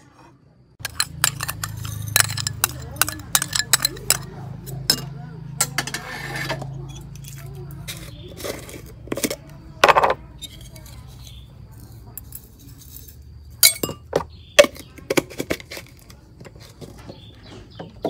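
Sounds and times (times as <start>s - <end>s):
metal spoon clinking on ceramic bowl: 0.8s - 5.9s, 13.6s - 14.1s.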